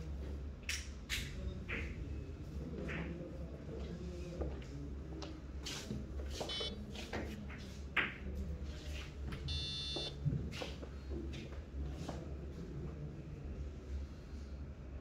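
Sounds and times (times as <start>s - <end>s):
electronic beeps: 6.5s - 6.8s, 9.5s - 10.1s
low steady hum: 9.2s - 10.4s.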